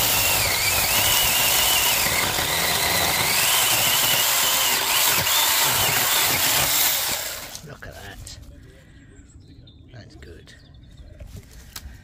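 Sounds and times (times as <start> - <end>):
mini chainsaw cutting wood: 0.0 - 7.6.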